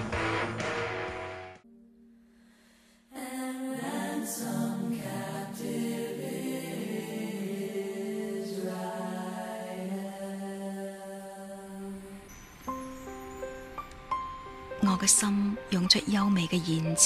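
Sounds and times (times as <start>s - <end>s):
soft choir-like music: 3.0s - 17.0s.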